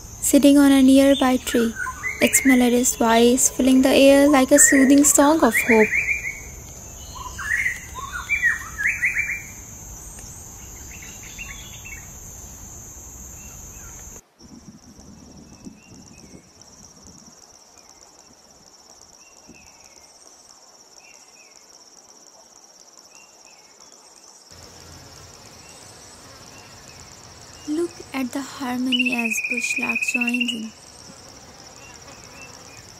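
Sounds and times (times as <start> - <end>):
high insect drone: 0.0 - 32.9
insect trill: 0.0 - 32.9
faint bird chirps: 1.0 - 12.2, 26.5 - 30.8
bird singing whistled phrases: 1.7 - 3.0, 4.6 - 6.4, 28.9 - 30.7.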